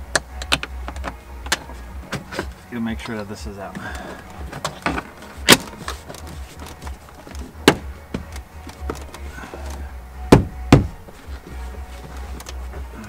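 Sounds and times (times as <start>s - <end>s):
plastic trim panel knocking: 10.3s - 11.0s.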